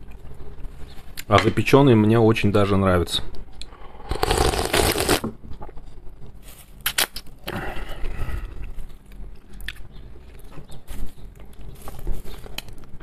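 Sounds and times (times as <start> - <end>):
noodle slurping: 4.0 - 5.2
chewing: 8.4 - 12.9.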